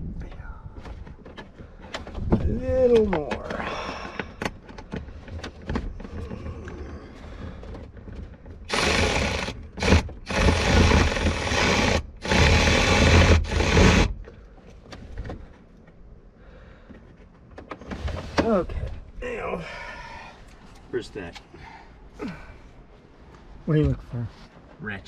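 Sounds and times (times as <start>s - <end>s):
cordless ratchet running: 8.6s - 14.1s.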